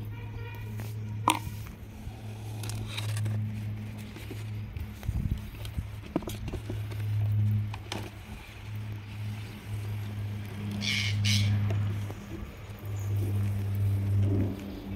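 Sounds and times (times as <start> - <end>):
low machine hum: 0.0 - 14.9
plastic jar clicks: 1.2 - 1.6.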